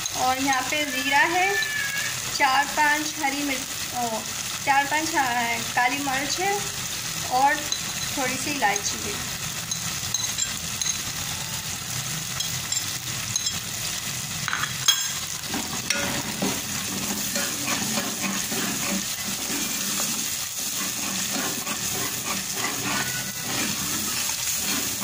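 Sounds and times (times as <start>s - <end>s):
spice paste sizzling in pot: 0.0s - 25.0s
ladle stirring and scraping: 7.6s - 11.1s, 12.4s - 13.6s, 14.5s - 25.0s.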